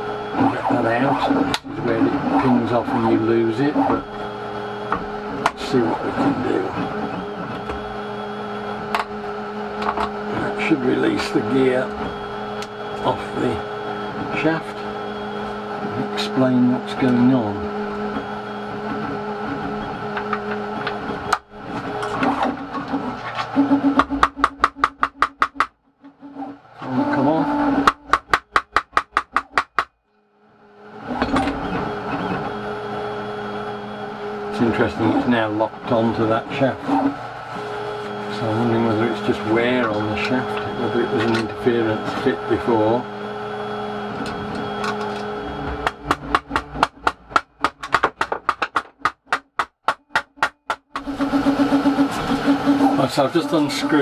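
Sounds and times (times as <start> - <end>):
hammer tapping metal: 27.8 - 29.9.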